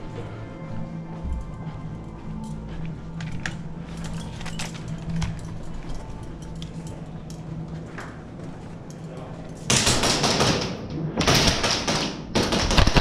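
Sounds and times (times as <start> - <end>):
airsoft gun firing rapid clicks: 11.3 - 13.0.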